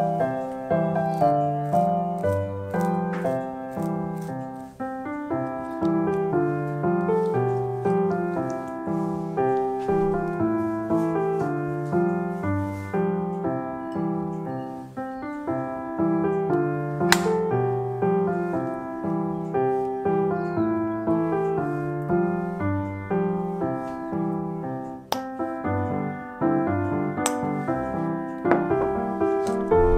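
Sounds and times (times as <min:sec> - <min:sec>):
piano music: 0:00.0 - 0:29.9
sharp click: 0:16.3 - 0:17.6, 0:26.8 - 0:27.6.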